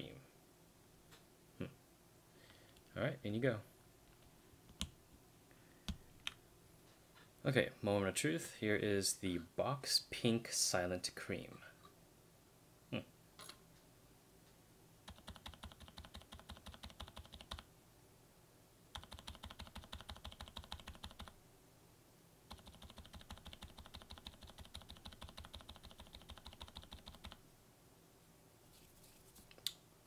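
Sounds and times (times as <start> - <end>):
mechanical keyboard typing: 15.1 - 17.6, 18.9 - 21.4, 22.5 - 27.4.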